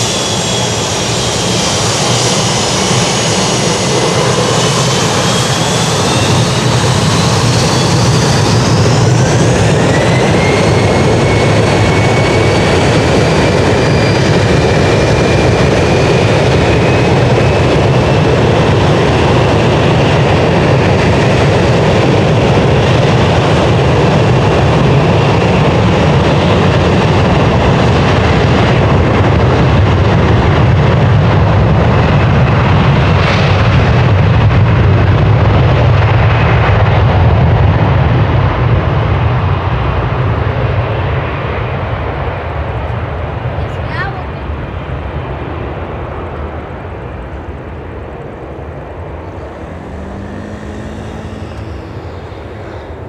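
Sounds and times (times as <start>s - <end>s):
high turbine whine: 0.0s - 28.3s, 44.5s - 53.0s
jet engine rumble: 0.0s - 53.0s.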